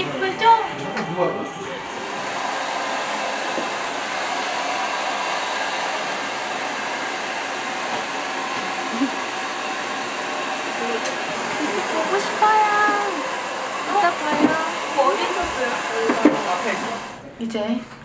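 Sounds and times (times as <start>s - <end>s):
hair dryer blowing air: 0.0s - 17.2s.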